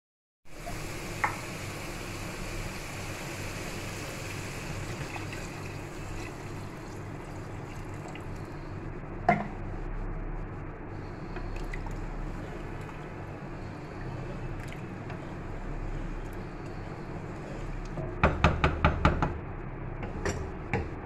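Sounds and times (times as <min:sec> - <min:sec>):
water pouring into pot: 0:00.5 - 0:08.5
frying hiss: 0:00.5 - 0:08.9.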